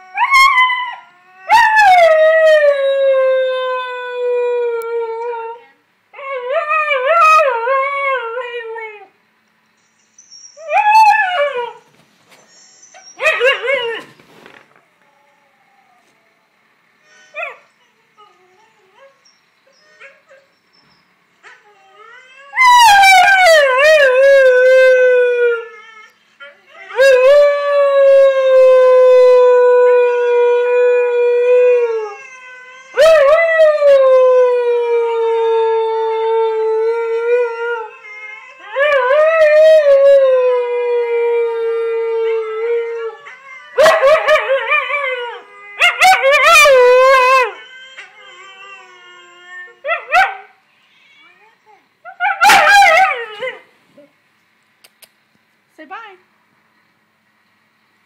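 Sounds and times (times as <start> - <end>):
husky howling: 26.7 - 50.5.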